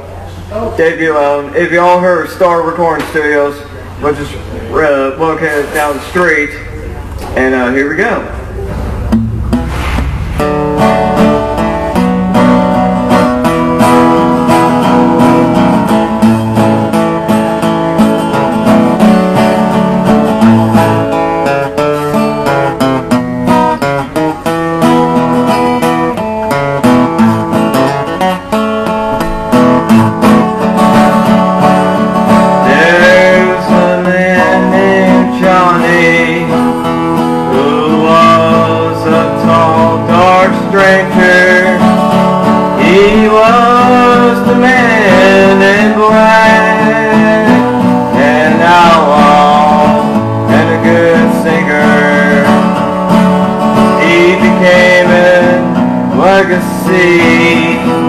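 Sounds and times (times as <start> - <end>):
acoustic guitar playing: 0.0 - 58.0
person singing: 32.6 - 42.1, 42.8 - 52.8, 53.9 - 58.0.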